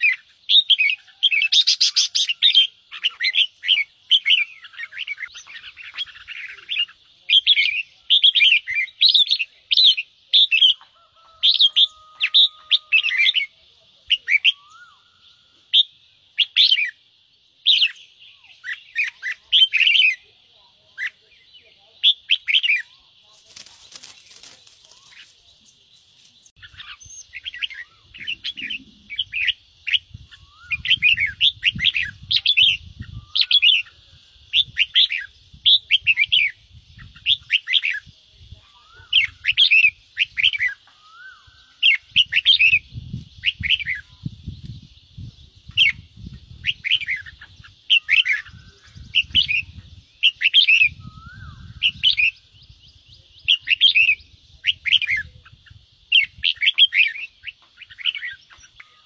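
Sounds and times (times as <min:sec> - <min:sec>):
bird chatter calls: 0:00.0 - 0:59.0
steady high hiss: 0:11.9 - 0:59.0.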